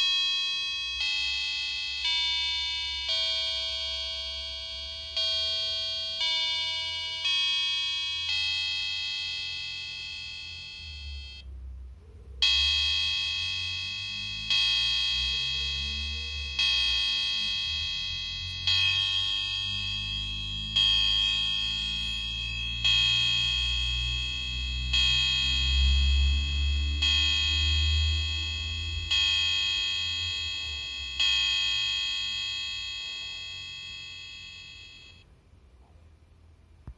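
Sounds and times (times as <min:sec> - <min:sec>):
chime melody: 0:00.0 - 0:11.4, 0:12.4 - 0:35.2
electronic bell tones: 0:00.0 - 0:11.4, 0:12.4 - 0:35.2.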